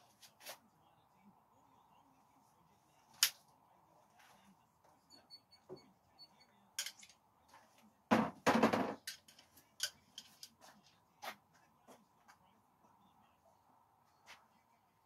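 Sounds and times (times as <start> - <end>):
metal screwdrivers rattling: 6.8 - 7.1, 9.0 - 10.5.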